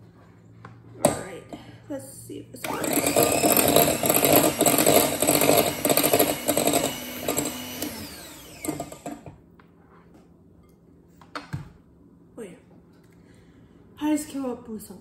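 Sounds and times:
electric hand mixer whine: 2.6 - 9.4.

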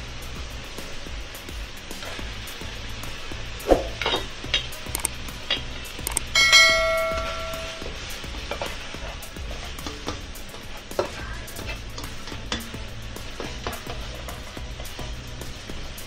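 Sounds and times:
meat and vegetables sizzling: 0.0 - 16.0
bell chime notification: 6.4 - 7.9
spatula scraping pan: 7.2 - 16.0.

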